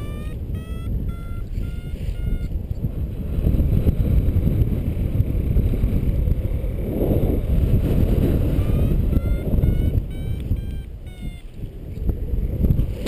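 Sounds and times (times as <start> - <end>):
variometer rising beep: 0.0 - 2.5, 8.6 - 11.5
wind buffeting microphone: 0.0 - 13.0.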